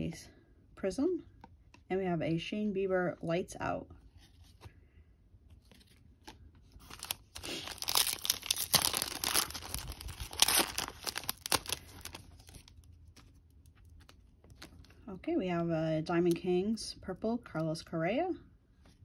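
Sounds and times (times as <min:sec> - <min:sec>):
foil wrapper tearing and crinkling: 0:06.8 - 0:14.8.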